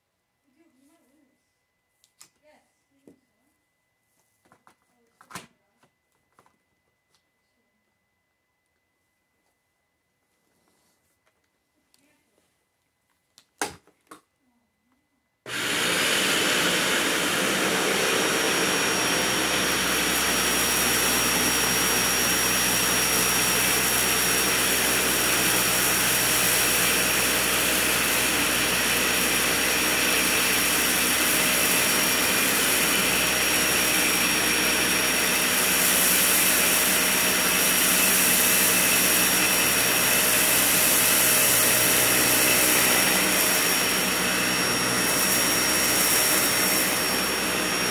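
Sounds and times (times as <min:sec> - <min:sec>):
vacuum cleaner running: 0:15.5 - 0:47.9.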